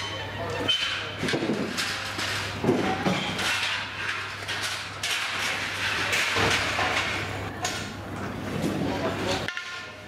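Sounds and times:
metal clanking and knocking: 0.6s - 7.2s.

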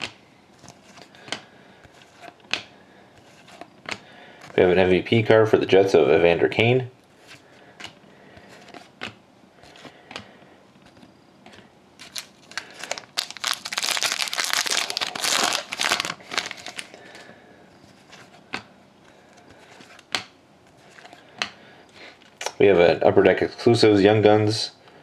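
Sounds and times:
cards being shuffled: 7.3s - 16.9s
foil wrapper crinkling and tearing: 12.0s - 17.0s.

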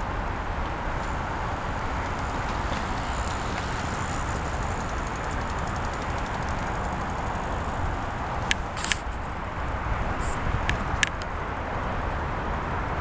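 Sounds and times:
city traffic hum: 0.0s - 13.0s
sharp clicks: 0.9s - 11.3s.

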